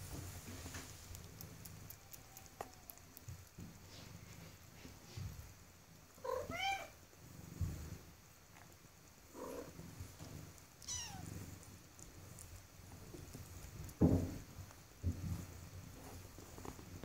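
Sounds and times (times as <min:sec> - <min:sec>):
kittens mewing: 0:10.8 - 0:11.3.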